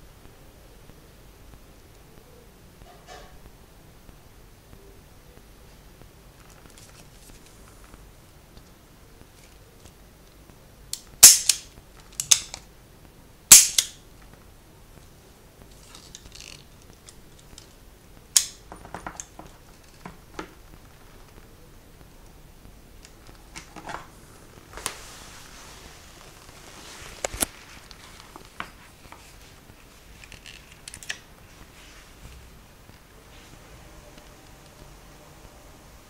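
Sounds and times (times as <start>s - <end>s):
soft rustle: 5.7s - 10.6s, 14.1s - 17.9s, 19.3s - 34.8s.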